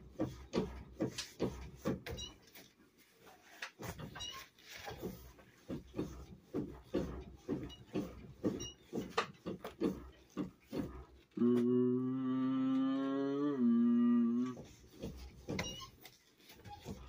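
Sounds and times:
person grunting rhythmically: 11.4s - 14.6s.

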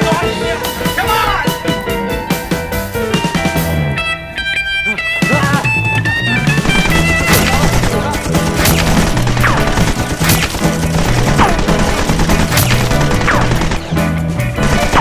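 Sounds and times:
rock music with bass line: 0.0s - 15.0s
gunshots with ricochet whine: 6.6s - 15.0s.

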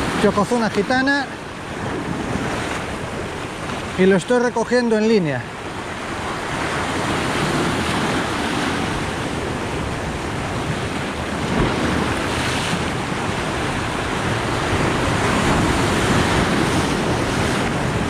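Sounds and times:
waves washing over rocky shore: 0.0s - 18.0s
wind buffeting microphone: 5.5s - 18.0s.

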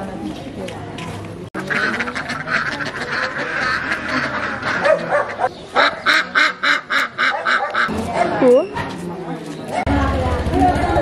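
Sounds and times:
ducks quacking: 1.6s - 8.0s
loud rapid quacks: 1.6s - 8.0s.

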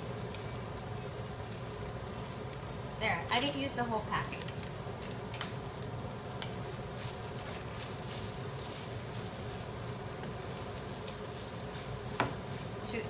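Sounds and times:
rice sizzling in frying pan: 0.0s - 13.0s
wooden spatula scraping pan: 7.0s - 13.0s.

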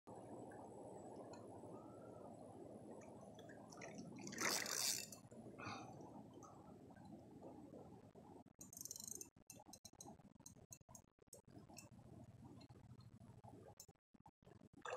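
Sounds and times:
flowing river water: 0.1s - 8.0s
water splash: 3.7s - 5.1s.

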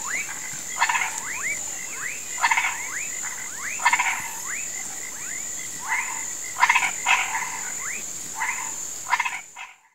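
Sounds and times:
steady high-pitched whine: 0.0s - 9.6s
frogs whistled calls: 0.0s - 9.9s
rattling croaks: 0.1s - 1.4s.

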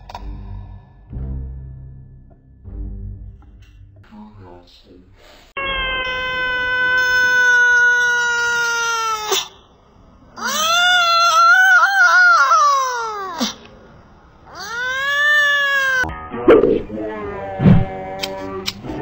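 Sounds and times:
cat yowling: 5.6s - 9.6s, 10.4s - 13.6s, 14.5s - 16.1s.

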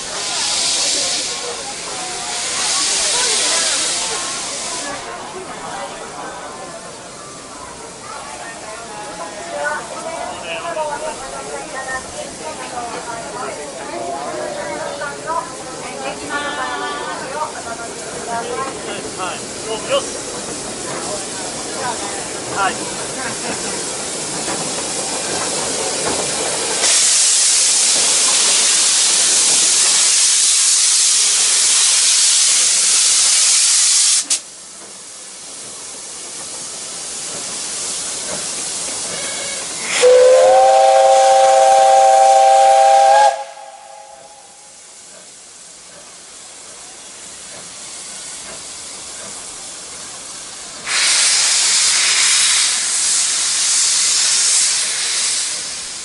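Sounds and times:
steam hissing: 0.0s - 56.0s
steam whistle blast: 39.2s - 44.8s.

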